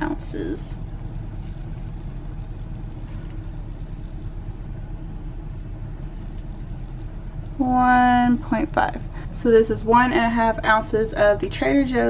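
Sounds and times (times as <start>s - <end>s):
low background rumble: 0.0s - 12.0s
low hum: 0.0s - 12.0s.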